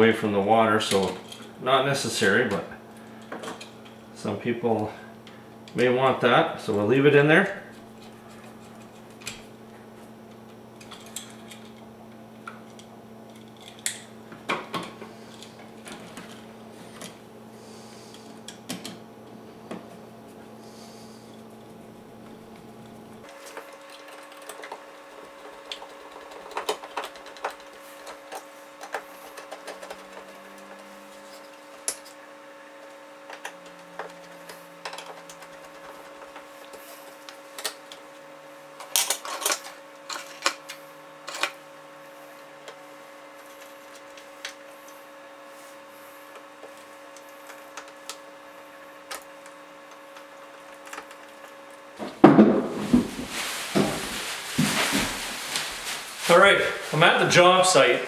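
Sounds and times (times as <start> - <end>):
faint steady hum: 0.0 - 58.0
handling noise: 52.0 - 57.9.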